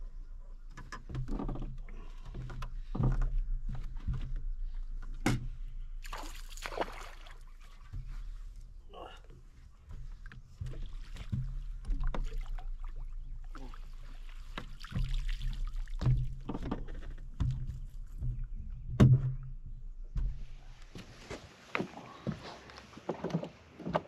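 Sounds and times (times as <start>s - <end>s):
knocks and thumps on boat deck: 0.7s - 5.7s, 7.8s - 8.6s, 9.8s - 13.2s, 13.8s - 21.4s
water dripping and splashing: 6.0s - 9.0s, 9.8s - 18.4s.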